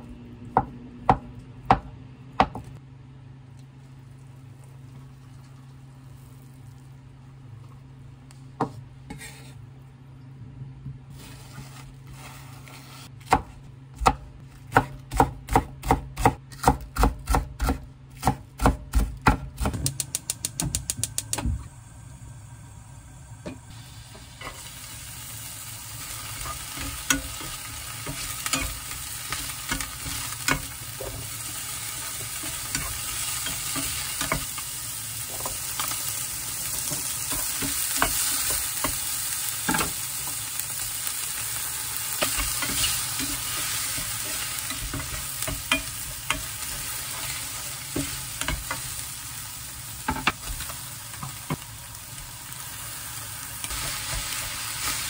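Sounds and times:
knife chopping on wooden board: 0:13.2 - 0:20.0
food sizzling in frying pan: 0:19.8 - 0:55.0.

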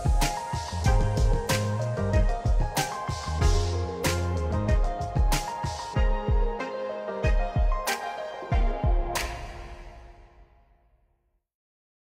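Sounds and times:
deep bass hits dropping in pitch: 0:00.7 - 0:05.4.

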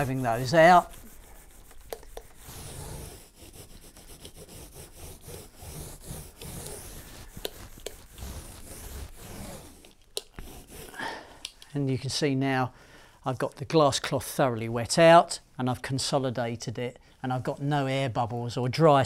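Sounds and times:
foam roller rubbing on cloth: 0:00.0 - 0:11.1.

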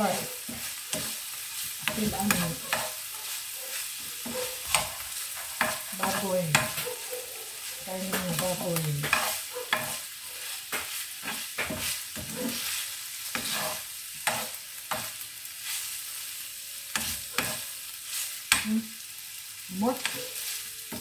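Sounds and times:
spatula scraping and knocking pan: 0:00.0 - 0:15.8, 0:16.9 - 0:18.7, 0:20.0 - 0:21.0
meat sizzling in oil: 0:00.0 - 0:21.0.

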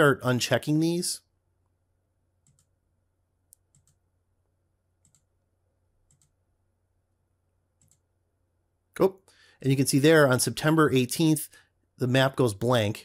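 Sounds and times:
computer mouse clicks: 0:02.4 - 0:02.7, 0:03.5 - 0:04.0, 0:05.0 - 0:05.3, 0:06.0 - 0:06.4, 0:07.8 - 0:08.0.

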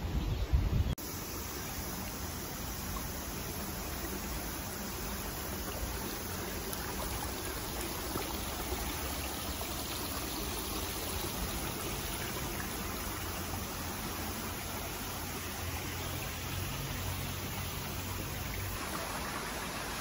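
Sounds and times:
brook babbling over stones: 0:01.0 - 0:20.0.

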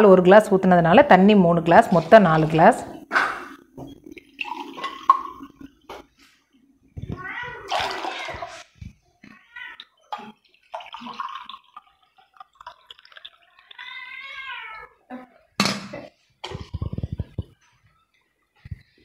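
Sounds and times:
water pouring and splashing: 0:03.5 - 0:06.2, 0:07.6 - 0:14.6.

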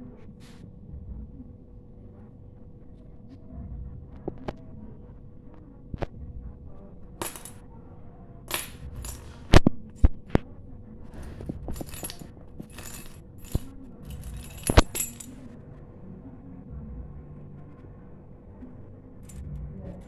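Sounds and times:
keys jingling: 0:07.2 - 0:07.6, 0:08.5 - 0:09.4, 0:11.6 - 0:15.4
keys knocking on tile floor: 0:07.2 - 0:07.6, 0:08.5 - 0:09.7, 0:11.2 - 0:15.4.

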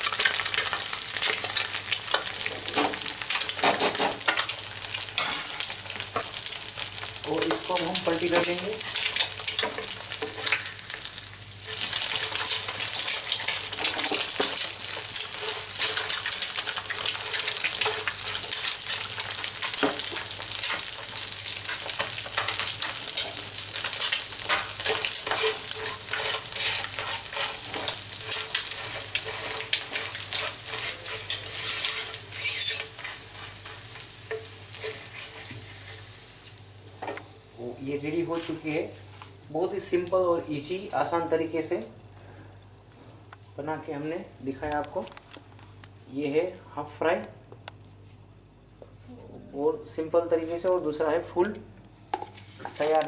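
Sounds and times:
egg sizzling in hot oil: 0:00.0 - 0:40.2.

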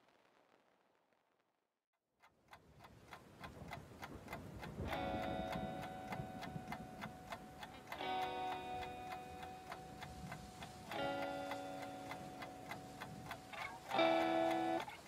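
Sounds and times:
clock ticking: 0:02.2 - 0:15.0
held pitched tones: 0:04.8 - 0:15.0.

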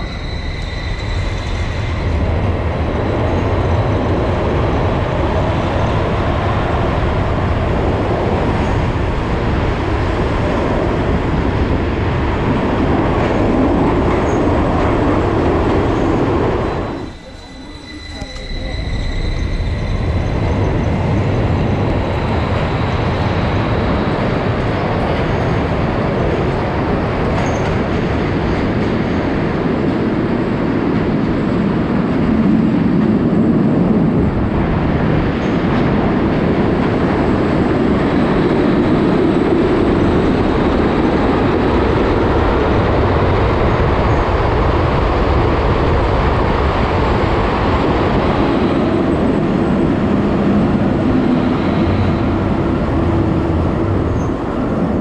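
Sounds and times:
thin high whistle: 0:00.0 - 0:02.0, 0:16.7 - 0:20.3
tram wheels rumbling on rails: 0:00.0 - 0:55.0.

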